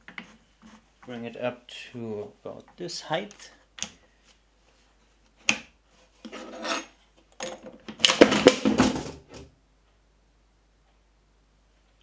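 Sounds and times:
crank scraping and rubbing: 6.2 - 7.0.

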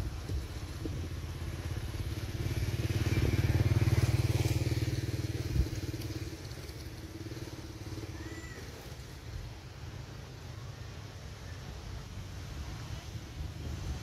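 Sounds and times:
motorcycle engine passing: 0.0 - 9.6.

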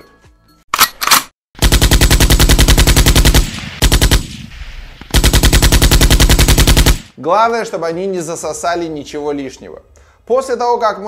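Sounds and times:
machine-gun fire: 1.6 - 7.2.

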